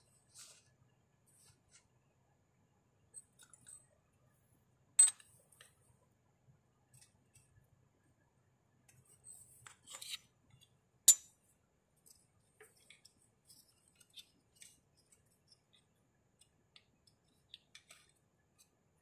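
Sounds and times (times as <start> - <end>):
hands clicking and rustling tools: 12.0 - 19.0.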